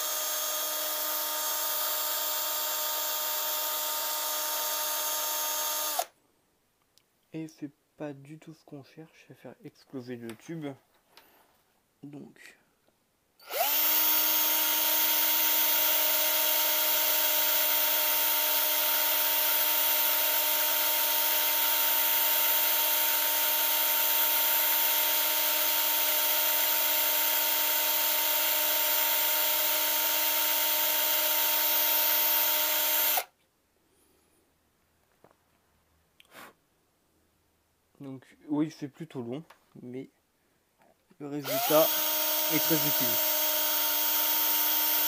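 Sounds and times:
cordless drill grinding into glass: 41.4 - 45.0.

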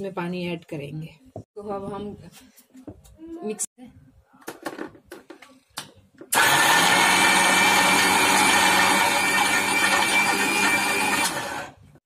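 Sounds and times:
mixer grinder motor running: 6.3 - 11.8.

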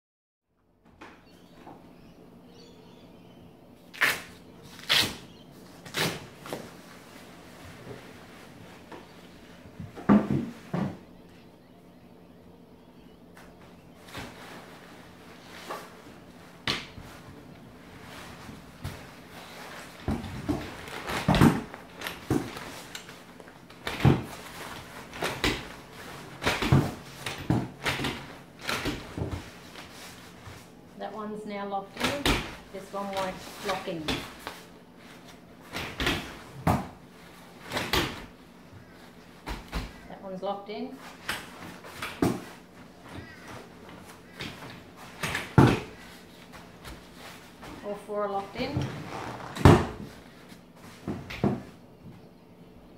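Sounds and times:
faint steady hum: 0.5 - 52.9
fabric bag rustling scrapes: 48.8 - 49.6.

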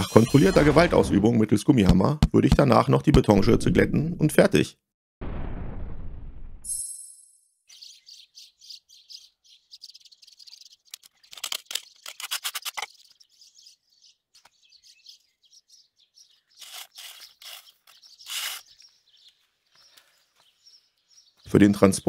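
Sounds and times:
small birds chirping: 7.7 - 22.0
shovel scraping gravel: 16.6 - 18.8.

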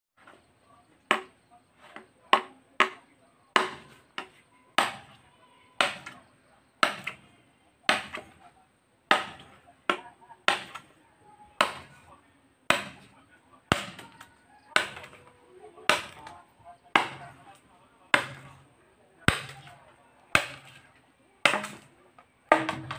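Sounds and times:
machete chopping bamboo: 1.0 - 5.2, 5.8 - 6.2, 6.8 - 8.4, 9.1 - 10.9, 11.6 - 12.1, 12.7 - 15.3, 15.9 - 18.6, 19.2 - 22.9.

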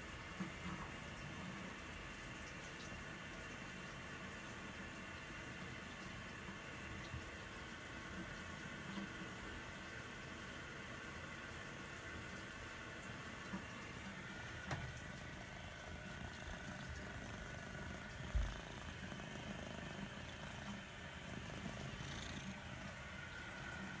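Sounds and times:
cat purring: 14.4 - 24.0.

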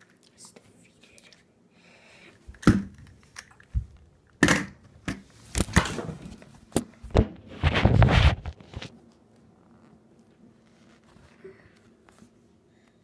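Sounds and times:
phone handling bumps and rubs: 7.1 - 8.9.

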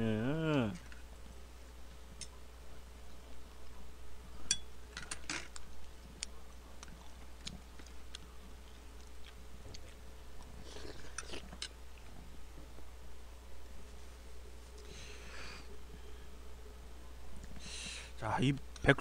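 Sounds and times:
quiet chewing: 5.5 - 12.9, 13.6 - 16.2.

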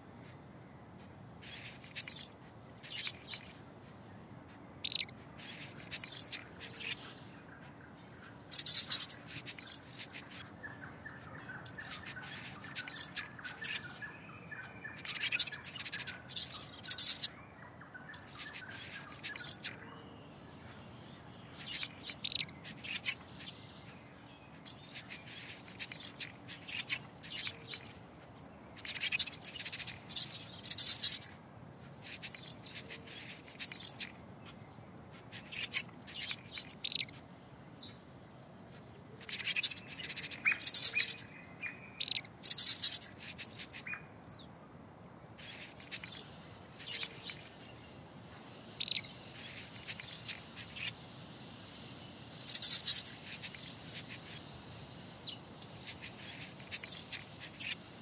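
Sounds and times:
small animal squeaking and chirping: 1.4 - 3.6, 4.8 - 7.2, 8.2 - 17.3, 18.1 - 19.8, 21.5 - 23.6, 24.5 - 28.0, 28.7 - 37.2, 39.1 - 44.4, 45.4 - 47.6, 48.8 - 51.0, 52.0 - 54.5, 55.2 - 58.0.

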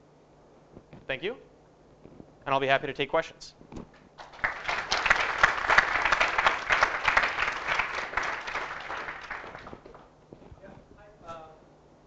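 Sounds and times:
audience applauding: 4.2 - 10.2.

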